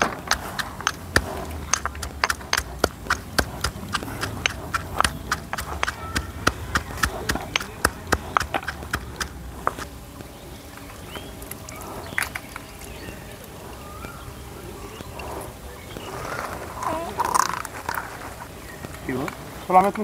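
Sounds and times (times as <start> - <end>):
sharp knocks: 0.0 - 9.9.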